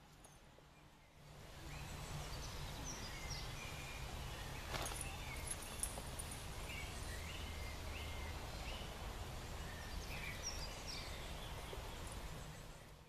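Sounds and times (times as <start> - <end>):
songbirds chirping: 0.0 - 13.0.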